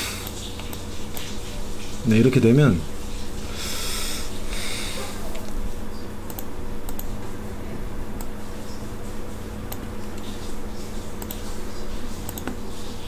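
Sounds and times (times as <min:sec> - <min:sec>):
low electrical hum: 0:00.0 - 0:13.0
computer mouse and keyboard clicks: 0:11.2 - 0:11.4, 0:12.2 - 0:12.6.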